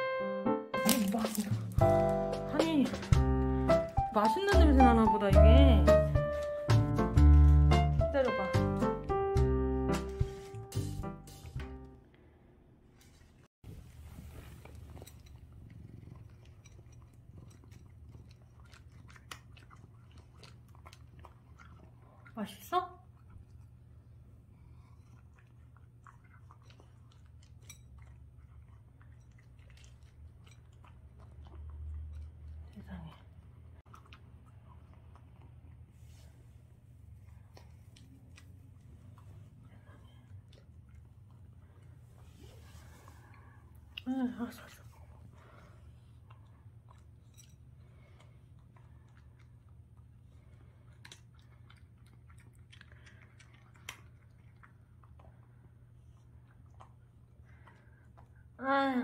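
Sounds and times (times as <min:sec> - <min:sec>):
cat crunching dry kibble: 0:00.8 - 0:01.9, 0:14.7 - 0:21.8.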